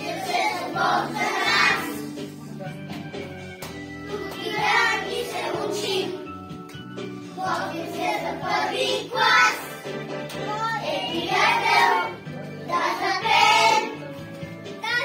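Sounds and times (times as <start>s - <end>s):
children singing in unison: 0.0s - 2.1s.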